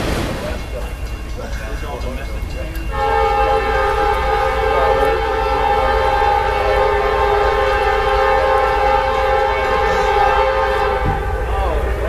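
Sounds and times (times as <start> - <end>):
train rumbling: 0.0 - 12.0
locomotive air horn: 2.9 - 12.0.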